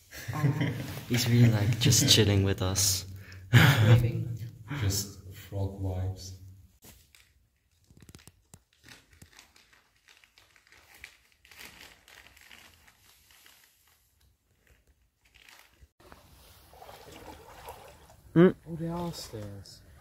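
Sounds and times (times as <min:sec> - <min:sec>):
faint rustling and crinkling: 0:06.8 - 0:17.0.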